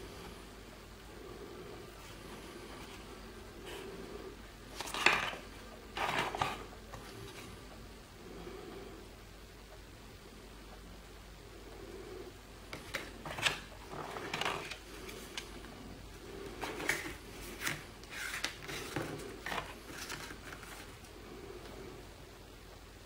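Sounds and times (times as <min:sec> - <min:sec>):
cards sliding and tapping on table: 0:16.6 - 0:20.9.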